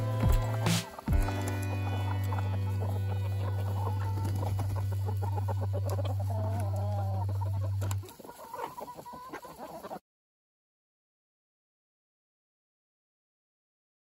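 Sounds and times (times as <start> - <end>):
chickens clucking: 0.0 - 10.0.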